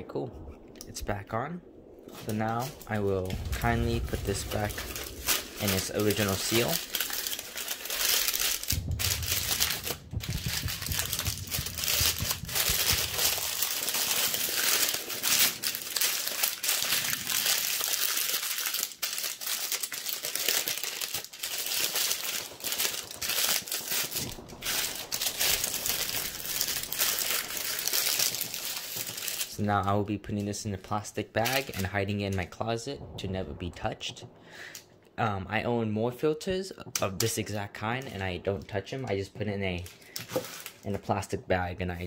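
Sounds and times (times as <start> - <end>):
stiff paper crinkling and crumpling: 2.2 - 29.6, 31.4 - 32.0, 39.6 - 41.2.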